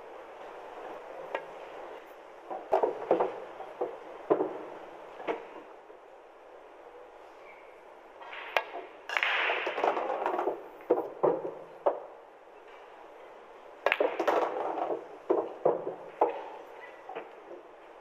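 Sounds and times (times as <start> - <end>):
billiard balls clacking: 0.4 - 5.7, 8.2 - 13.0, 13.6 - 18.0
cue striking ball: 2.5 - 5.5, 8.3 - 12.2, 13.8 - 17.3.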